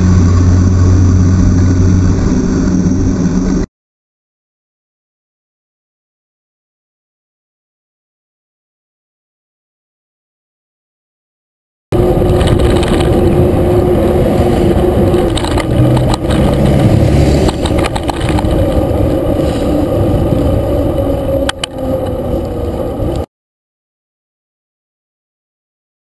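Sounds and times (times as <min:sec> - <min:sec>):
road noise: 0:00.0 - 0:03.7, 0:11.9 - 0:23.3
vehicle engine humming: 0:00.0 - 0:03.7, 0:11.9 - 0:23.3
wind on microphone: 0:11.9 - 0:23.3.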